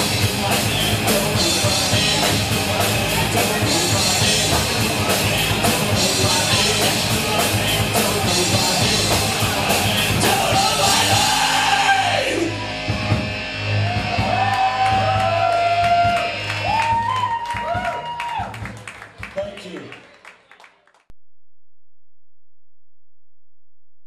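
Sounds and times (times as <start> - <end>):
yelled vocals: 0.0 - 12.9
distorted electric guitar: 0.0 - 17.3
rock drums: 0.0 - 19.3.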